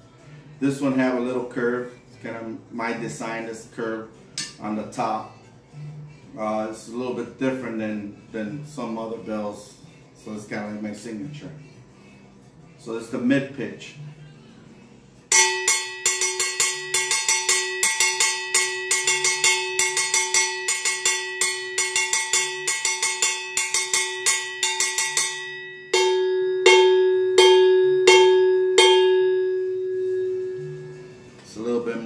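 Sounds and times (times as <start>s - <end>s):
cowbell struck with drumstick: 15.3s - 30.8s.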